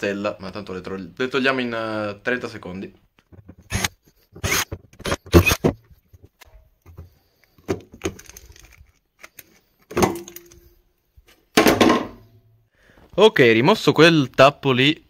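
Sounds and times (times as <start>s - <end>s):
plastic cover clicking and knocking: 4.8s - 8.7s.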